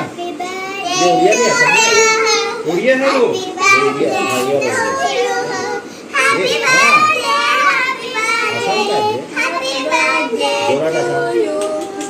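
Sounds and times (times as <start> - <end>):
young children talking: 0.9 - 9.9.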